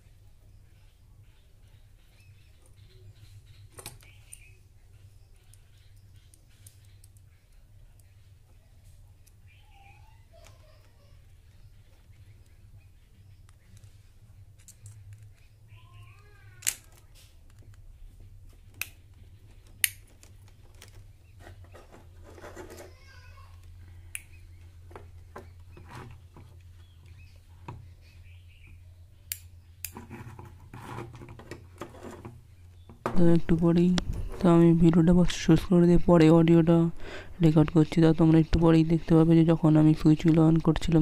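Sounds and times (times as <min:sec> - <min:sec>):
bird chirping: 0:00.0 - 0:22.2, 0:22.9 - 0:30.2, 0:32.4 - 0:41.0
low steady hum: 0:00.0 - 0:41.0
wires rustling: 0:02.6 - 0:28.0
plastic parts and wires clicking: 0:14.6 - 0:17.9, 0:18.6 - 0:26.7.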